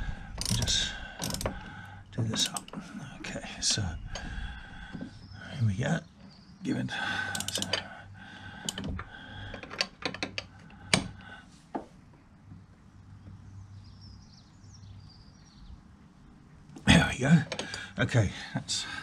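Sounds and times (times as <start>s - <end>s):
socket wrench clicking: 0.4s - 1.6s, 2.3s - 2.8s, 7.3s - 7.9s, 8.6s - 11.2s.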